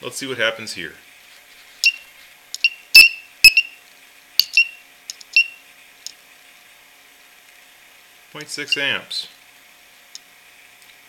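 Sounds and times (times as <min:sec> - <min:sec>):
alligator clip clicking on battery terminal: 0:04.4 - 0:06.2.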